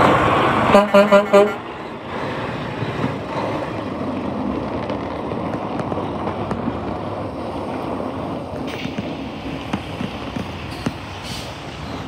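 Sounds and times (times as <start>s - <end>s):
truck diesel engine rumbling: 0.0s - 12.0s
truck horn toot: 0.7s - 1.6s.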